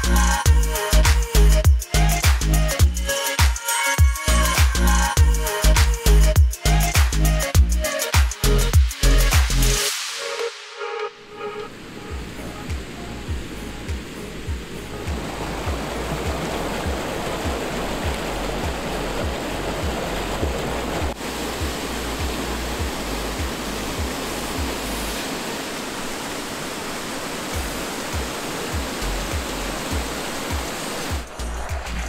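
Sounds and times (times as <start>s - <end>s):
background music with low beat: 0.0s - 25.2s, 27.6s - 32.0s
water rushing over rocks: 11.3s - 32.0s.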